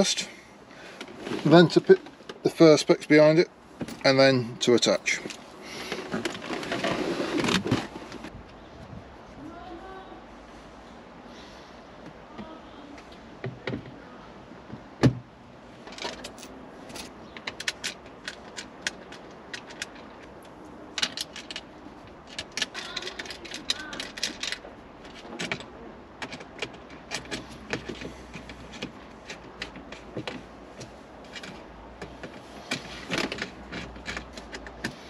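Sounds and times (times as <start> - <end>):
allen key metal clicks: 15.9 - 30.2.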